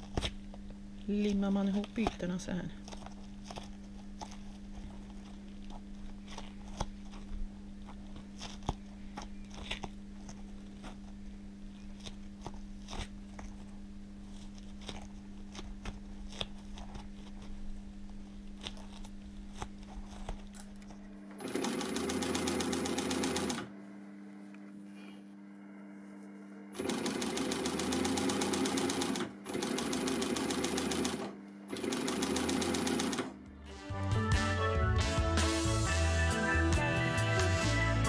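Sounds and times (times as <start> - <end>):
steady low hum: 0.0 - 29.6
industrial sewing machine stitching: 21.4 - 23.7, 26.8 - 33.4.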